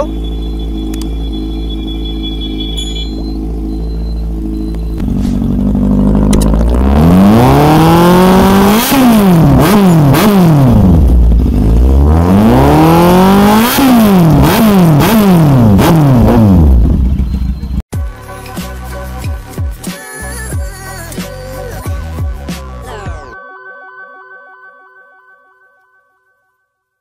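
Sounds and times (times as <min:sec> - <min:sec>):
motorcycle engine revving: 0:00.0 - 0:17.8.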